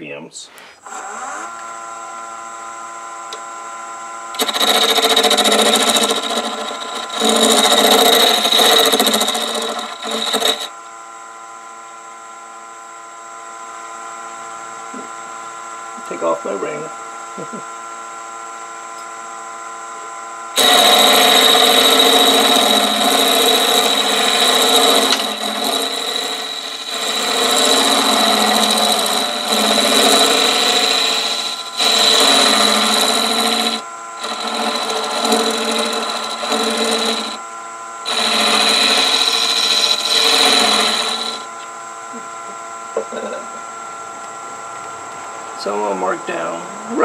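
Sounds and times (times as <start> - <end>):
lathe motor whine: 0.9 - 47.0
turning tool scraping wood: 4.4 - 10.7, 20.6 - 37.4, 38.0 - 41.5.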